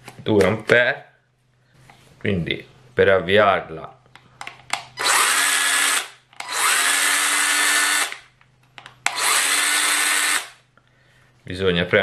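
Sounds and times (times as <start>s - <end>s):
mini chainsaw motor whirring: 5.0s - 8.2s, 9.1s - 10.6s.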